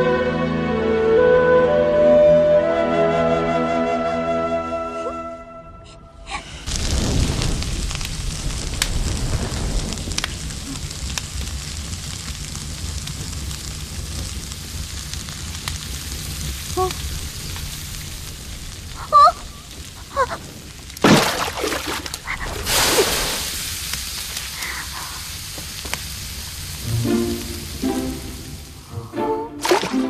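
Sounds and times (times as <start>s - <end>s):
flute music: 0.0s - 6.3s, 26.8s - 30.0s
stove fire burning with crackles: 6.3s - 29.0s.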